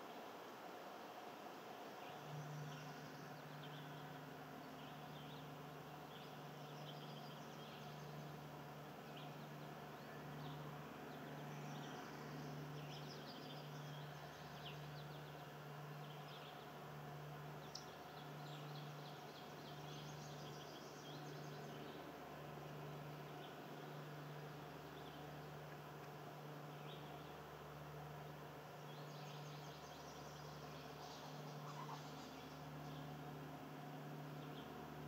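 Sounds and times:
steady low hum: 0.0 - 35.0
distant birds chirping: 2.0 - 35.0.

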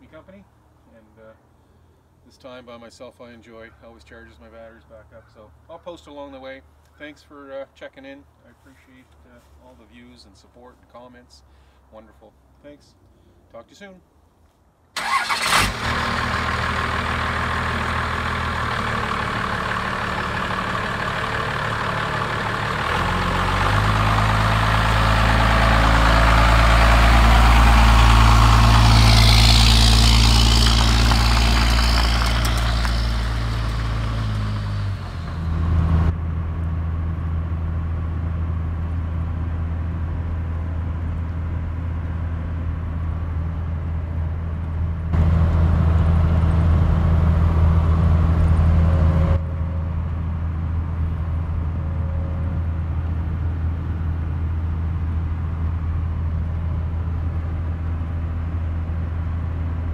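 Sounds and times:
diesel drone inside cab: 15.0 - 59.9
diesel truck engine: 15.0 - 59.9.

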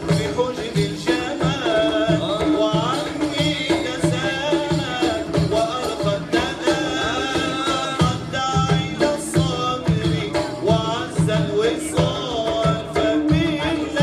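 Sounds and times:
frame drum beat: 0.0 - 14.0
person chanting devotional melody: 0.0 - 14.0.

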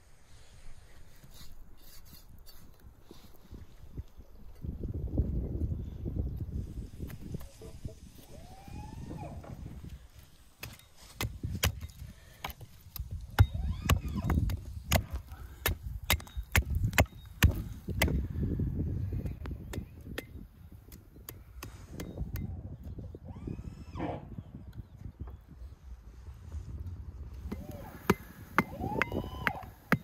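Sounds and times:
hatchet striking wood: 10.6 - 18.2, 27.5 - 30.0.

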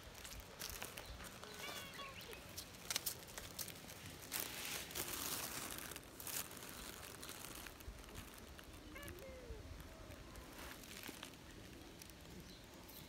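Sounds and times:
rustling and brushing of petting: 0.1 - 13.0
cat meowing: 1.6 - 2.4, 8.8 - 9.6.

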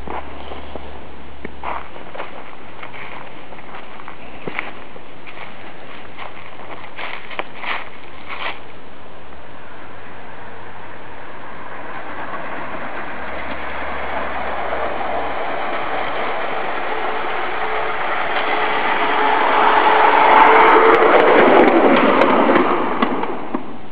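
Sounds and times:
steel wheels on rails: 0.0 - 8.8, 9.4 - 23.9.

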